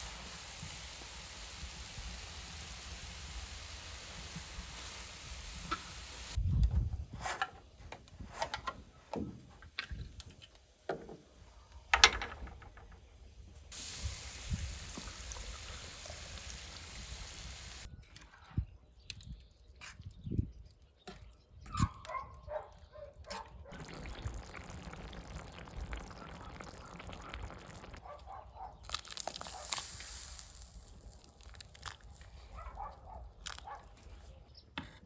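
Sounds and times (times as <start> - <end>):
vegetables sizzling in a pan: 0.0 - 6.4, 13.7 - 17.9, 29.2 - 31.2
liquid pouring into pan: 23.7 - 28.0.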